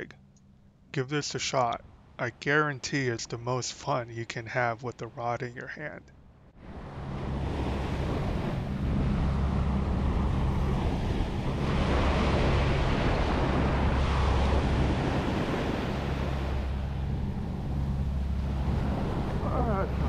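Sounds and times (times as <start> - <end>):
ocean surf washing onto beach: 6.6 - 20.0
wind buffeting microphone: 6.6 - 20.0.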